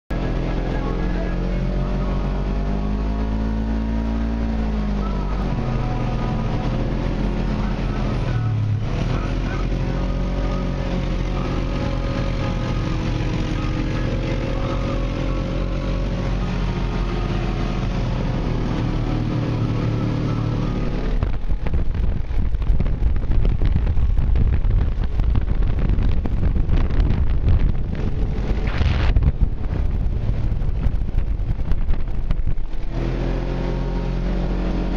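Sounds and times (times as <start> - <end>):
vehicle engine running: 0.1 - 34.9
wind buffeting microphone: 21.0 - 33.5.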